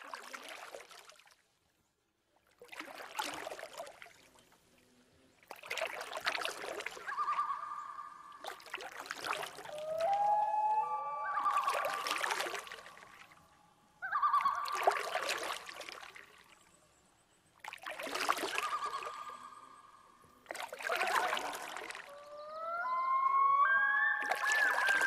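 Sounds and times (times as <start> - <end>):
water gushing in surges: 0.0 - 1.3, 2.6 - 4.4, 5.4 - 10.4, 11.3 - 13.4, 14.4 - 16.7, 17.6 - 19.6, 20.4 - 22.2, 24.2 - 25.0.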